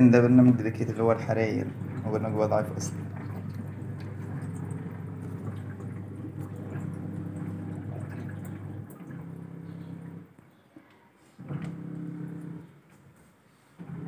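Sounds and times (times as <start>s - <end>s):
water sloshing in tub: 0.0s - 10.4s
washing machine motor hum: 0.0s - 10.5s, 11.3s - 14.0s.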